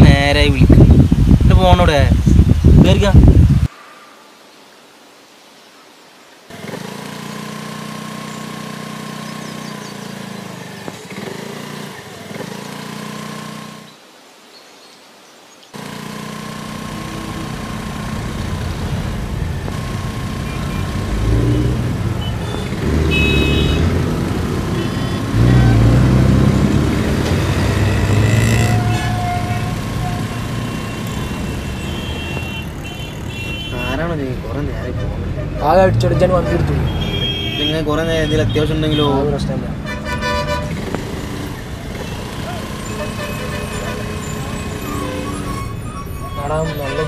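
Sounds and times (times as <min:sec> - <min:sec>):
scooter engine running: 0:06.5 - 0:13.9, 0:15.8 - 0:33.8, 0:40.0 - 0:45.8.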